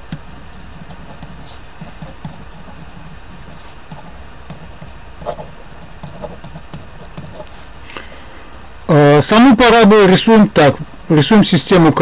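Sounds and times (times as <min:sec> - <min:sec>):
pen writing on paper: 0:00.8 - 0:07.7.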